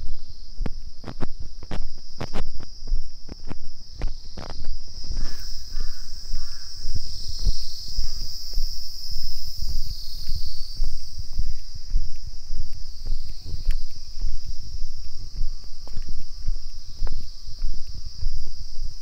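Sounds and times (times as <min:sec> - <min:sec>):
footsteps crunching: 0:00.0 - 0:19.0
insects droning: 0:00.0 - 0:19.0
bird calling: 0:05.1 - 0:08.3.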